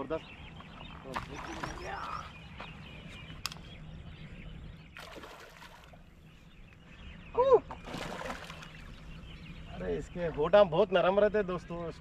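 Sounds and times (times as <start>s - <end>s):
fish splashing in water: 5.0s - 6.0s, 7.8s - 8.9s.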